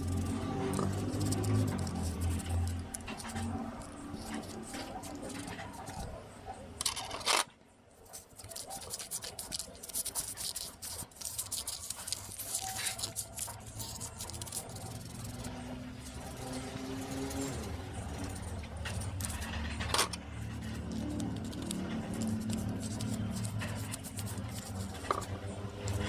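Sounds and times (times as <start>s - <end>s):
metal parts clicking and scraping: 6.8s - 7.5s, 11.8s - 26.0s.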